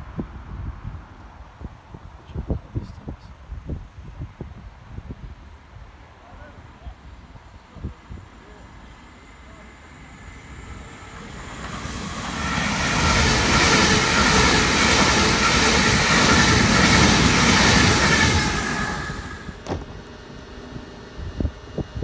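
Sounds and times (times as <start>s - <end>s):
train wheels rumbling on rails: 9.5s - 22.0s.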